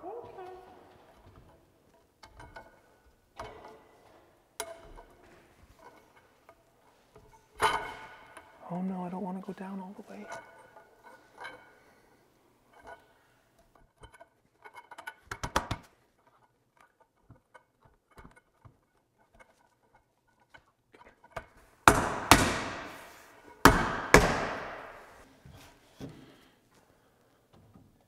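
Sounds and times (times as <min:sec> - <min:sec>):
sharp knocks on wood: 0:21.9 - 0:25.2.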